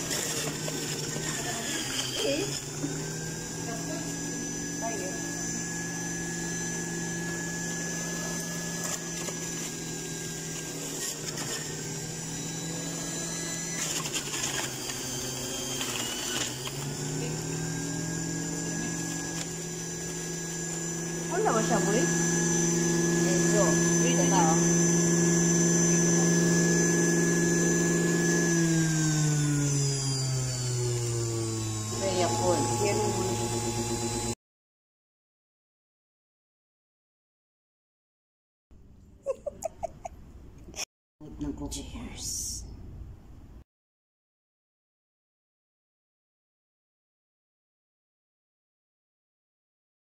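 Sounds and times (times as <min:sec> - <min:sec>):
fruit rattling in juicer: 0:00.0 - 0:30.0
juicer motor whine: 0:00.0 - 0:34.4.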